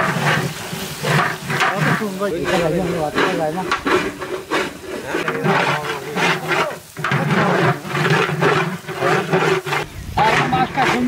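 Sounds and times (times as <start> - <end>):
metal ladle scraping a pot: 0.0 - 11.0
people talking: 1.6 - 4.1, 4.8 - 8.0, 8.9 - 11.0.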